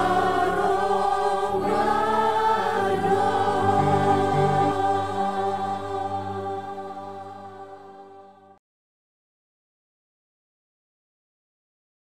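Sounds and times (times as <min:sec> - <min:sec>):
backing music: 0:00.0 - 0:08.5
mixed choir singing: 0:00.0 - 0:08.6.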